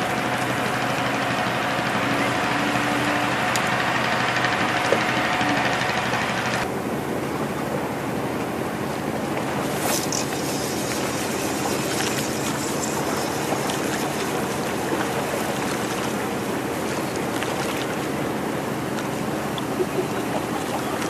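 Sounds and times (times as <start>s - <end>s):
engine drone: 0.0s - 21.0s
small waves washing against rocks: 9.5s - 18.1s.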